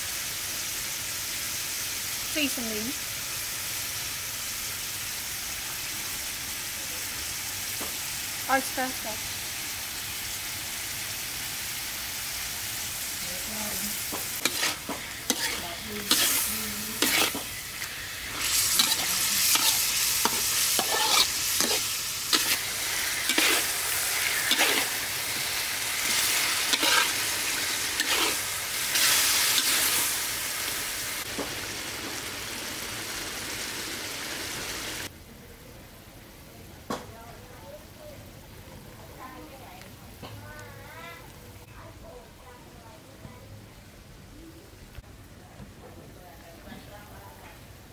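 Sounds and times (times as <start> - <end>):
food sizzling in a wok: 0.0 - 44.7
metal spatula scraping pan: 14.4 - 25.4, 26.0 - 30.0.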